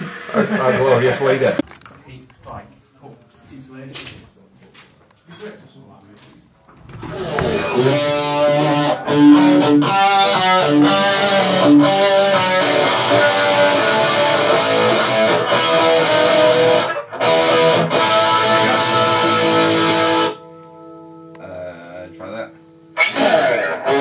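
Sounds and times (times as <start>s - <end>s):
electric guitar riffs and chords: 7.0s - 21.7s, 22.5s - 24.0s.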